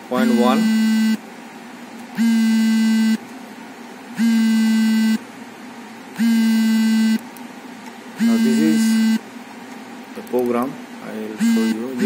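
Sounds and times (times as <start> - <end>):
electronic buzzer buzzing: 0.1 - 1.2, 2.2 - 3.2, 4.2 - 5.2, 6.2 - 7.2, 8.2 - 9.2, 11.4 - 12.0.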